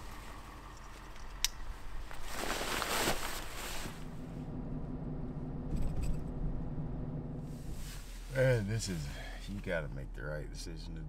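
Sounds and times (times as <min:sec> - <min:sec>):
vehicle engine idling: 0:00.0 - 0:02.2, 0:03.5 - 0:11.0
fabric cover rustling: 0:01.8 - 0:04.2.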